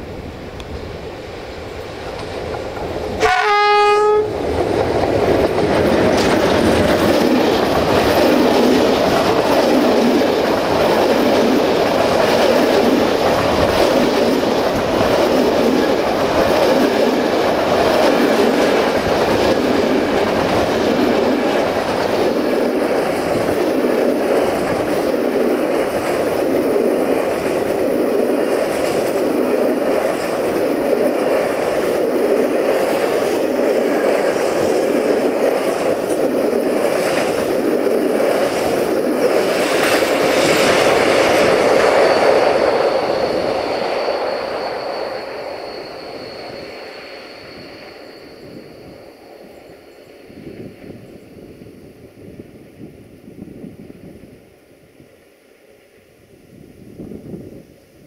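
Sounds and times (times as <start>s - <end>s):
train wagons clattering on track: 1.6s - 51.0s
locomotive horn blast: 3.2s - 4.4s.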